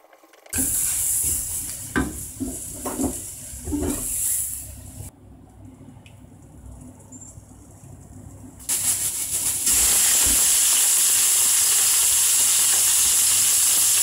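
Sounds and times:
meat sizzling in hot oil: 8.7s - 14.0s.

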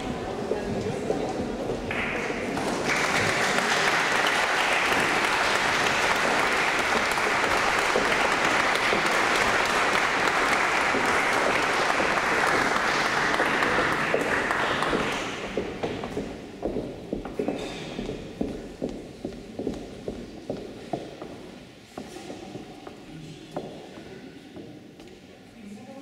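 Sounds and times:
audience applauding: 1.8s - 15.8s.

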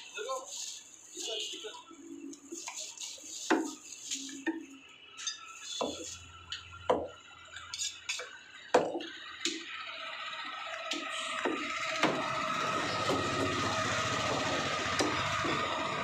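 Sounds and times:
cleaver chopping meat on wood: 8.7s - 9.6s, 11.4s - 12.3s.

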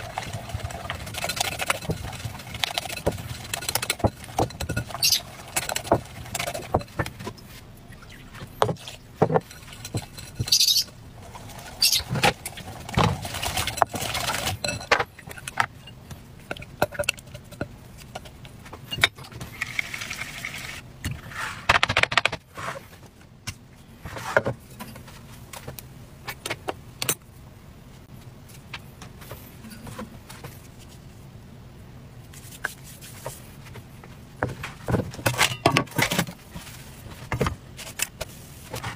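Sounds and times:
whisk scraping glass bowl: 0.0s - 7.2s, 8.1s - 17.7s
utensils knocking and clattering: 0.2s - 7.3s, 8.6s - 10.8s.

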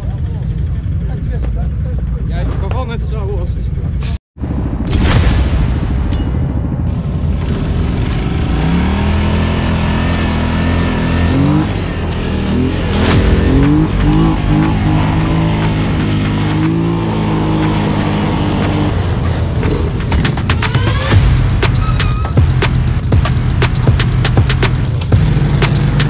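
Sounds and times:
steady low drone: 3.7s - 26.0s
quad bike engines revving: 6.9s - 26.0s.

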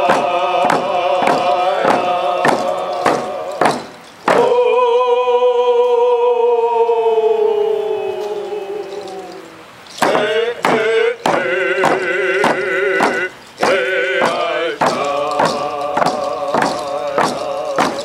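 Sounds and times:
hand frame drums beating: 0.0s - 4.5s, 9.9s - 18.0s
men chanting in unison: 0.0s - 18.0s.

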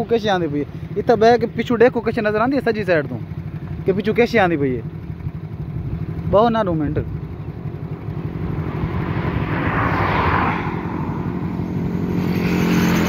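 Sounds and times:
motorcycle engine running: 0.0s - 13.0s
rush of noise: 7.5s - 13.0s.

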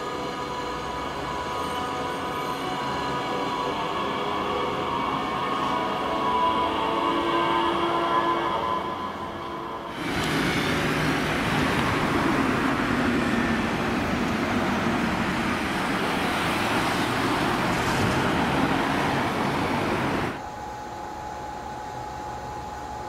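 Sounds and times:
train wheels rumbling on rails: 9.9s - 20.4s.

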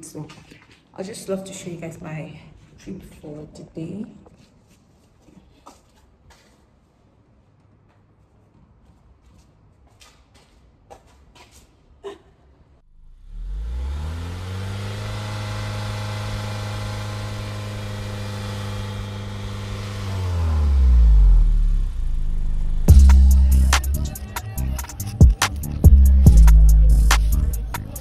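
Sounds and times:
vehicle engine from inside cabin: 12.8s - 24.0s.

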